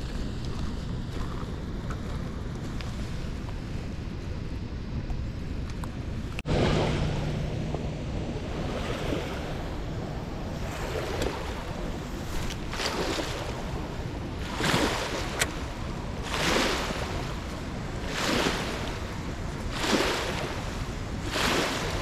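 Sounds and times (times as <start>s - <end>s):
wind on microphone: 0.0s - 22.0s
river water rushing: 6.4s - 22.0s.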